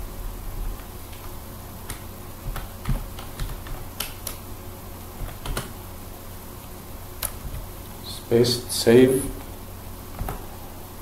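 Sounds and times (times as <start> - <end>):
keyboard keys clicking: 1.9 - 4.4, 5.2 - 5.7.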